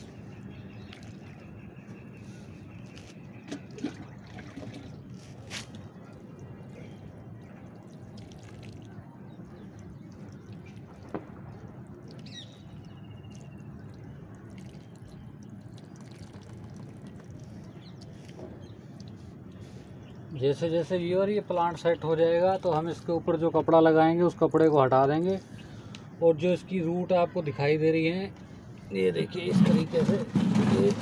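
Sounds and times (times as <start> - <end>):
water trickling and dripping: 0.1 - 20.4.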